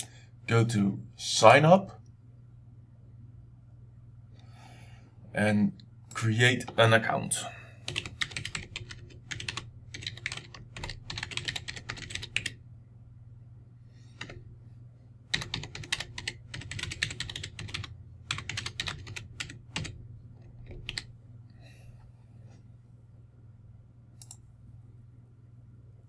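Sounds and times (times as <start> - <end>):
typing on a keyboard: 7.8 - 12.6, 14.2 - 14.4, 15.3 - 21.1.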